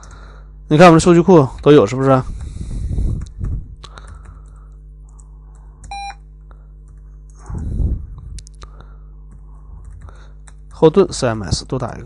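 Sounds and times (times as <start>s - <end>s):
steady low hum: 0.0s - 12.0s
breathy sound: 3.8s - 5.9s
short computer beep: 5.9s - 6.2s.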